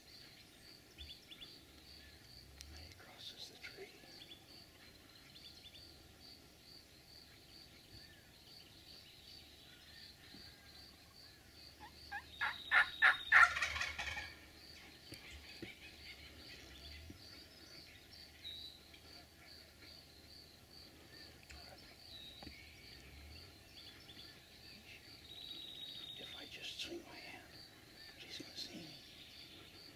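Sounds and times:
turkey gobbling: 0:11.8 - 0:14.4.

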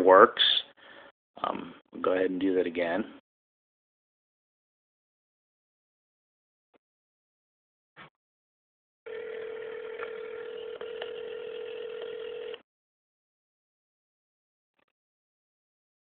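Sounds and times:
telephone ringback tone: 0:09.1 - 0:12.6.

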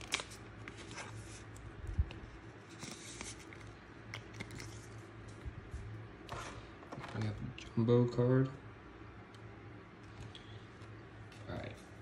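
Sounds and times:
plastic card sleeve rustling: 0:00.0 - 0:05.4.

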